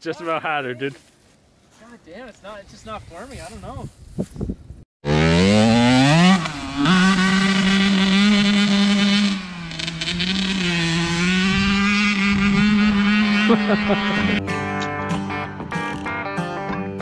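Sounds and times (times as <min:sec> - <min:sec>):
vehicle engine revving: 0:05.0 - 0:14.4.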